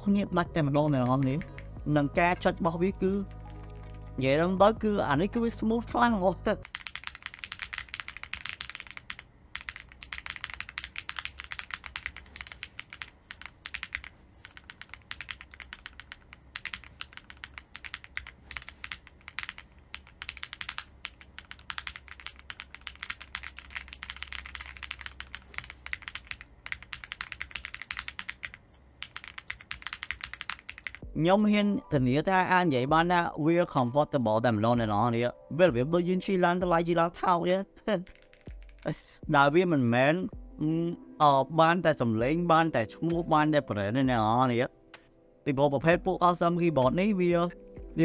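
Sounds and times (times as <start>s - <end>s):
mechanical keyboard typing: 0.9s - 1.8s, 6.6s - 31.1s, 38.0s - 39.0s.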